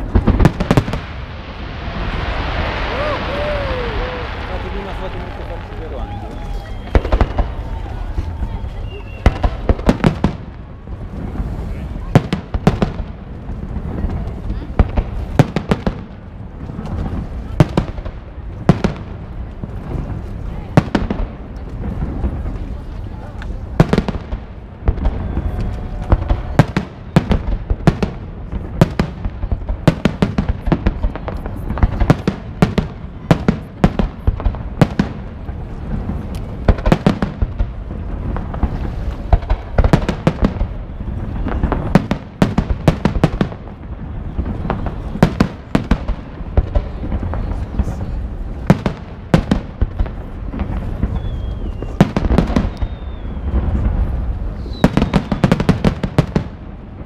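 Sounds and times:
firework bangs: 0:00.0 - 0:57.0
falling whistle: 0:08.5 - 0:09.4, 0:51.1 - 0:52.0, 0:52.7 - 0:53.6.

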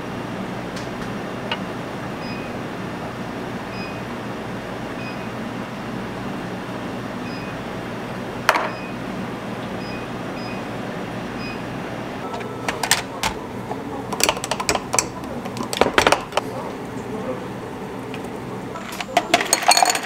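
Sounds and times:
machinery humming: 0:00.0 - 0:20.0
clicks and knocks: 0:12.3 - 0:16.5.

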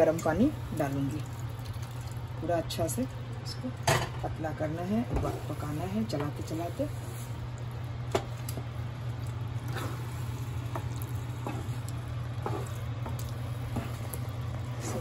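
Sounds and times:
spoon stirring wet mash: 0:05.1 - 0:15.0.

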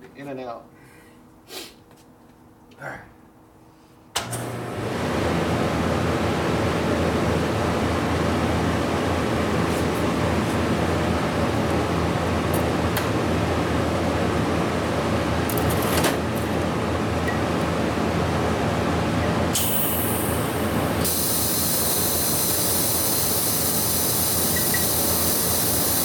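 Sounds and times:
sharp high welding hiss: 0:19.6 - 0:26.0
welding hiss with low hum: 0:19.6 - 0:26.0.

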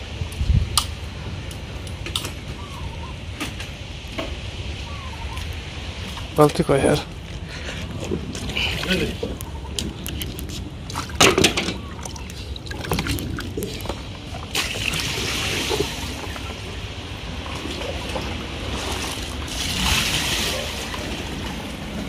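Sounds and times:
water splashing: 0:08.0 - 0:22.0.

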